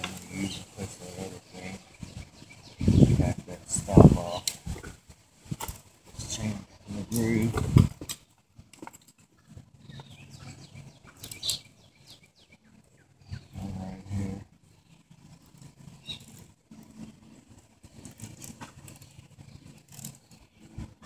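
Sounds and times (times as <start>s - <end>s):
animal's low voice: 13.3s - 14.5s.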